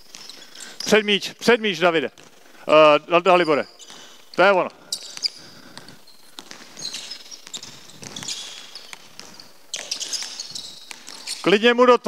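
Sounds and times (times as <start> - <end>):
sneaker squeaks: 0.0 - 12.0
basketball bouncing on hardwood: 5.2 - 10.2.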